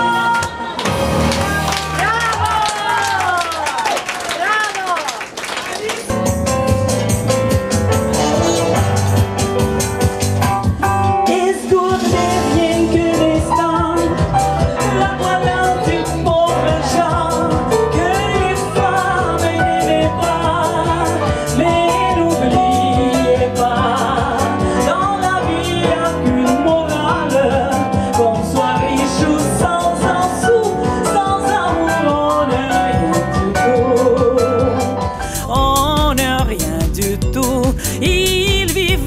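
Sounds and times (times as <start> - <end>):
woman singing with vibrato: 0.0 - 0.8, 11.2 - 39.0
electronic keyboard with beat: 6.1 - 39.0.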